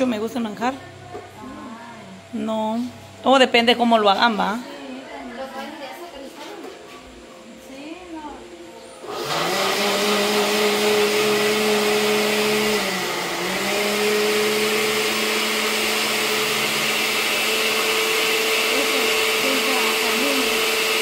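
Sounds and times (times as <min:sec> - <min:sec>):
blender motor whine: 0:09.0 - 0:21.0.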